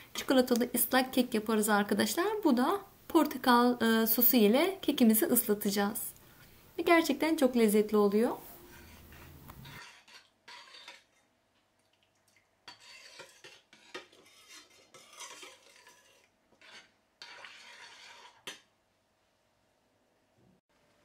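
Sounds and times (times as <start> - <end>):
metal spoon scraping a pan: 8.4 - 11.3, 12.6 - 18.7.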